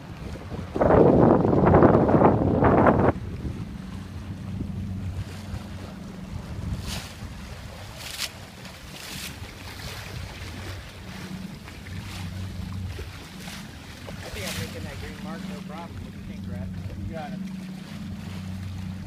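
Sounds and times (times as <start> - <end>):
water rushing along hull: 0.0 - 19.0
waves splashing against hull: 0.0 - 19.0
wind buffeting microphone: 0.0 - 19.0.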